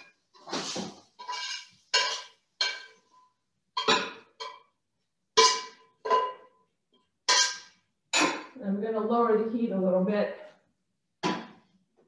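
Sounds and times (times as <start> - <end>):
utensil scraping metal frying pan: 0.3 - 3.2, 7.3 - 8.4.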